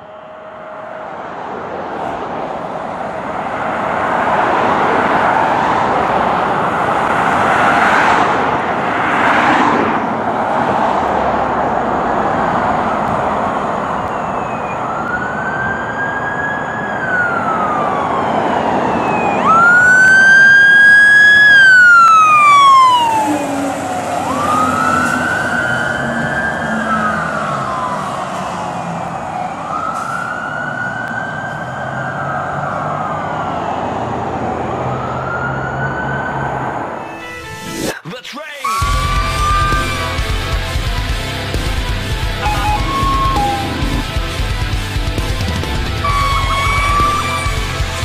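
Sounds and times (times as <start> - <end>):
siren wailing: 0.0 - 9.7, 11.9 - 37.4, 38.6 - 44.6, 45.3 - 48.0
loud rushing noise: 38.8 - 48.0.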